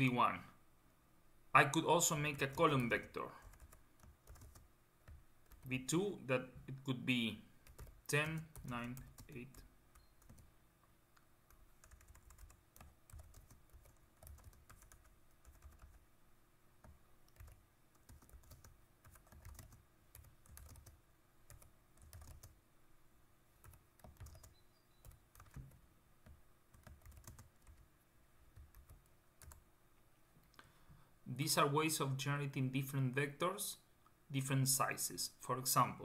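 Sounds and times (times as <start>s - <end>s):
faint keyboard typing: 2.3s - 5.9s, 7.6s - 10.5s, 11.1s - 16.1s, 16.8s - 22.6s, 23.6s - 27.9s, 28.5s - 29.6s.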